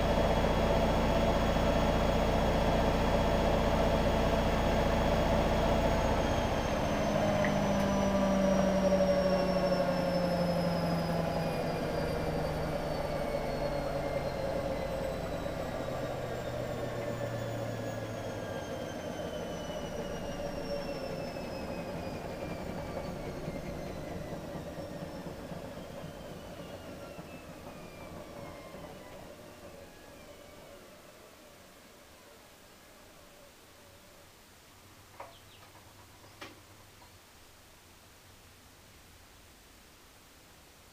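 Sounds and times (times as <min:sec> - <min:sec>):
washing machine winding down: 0:00.0 - 0:32.3.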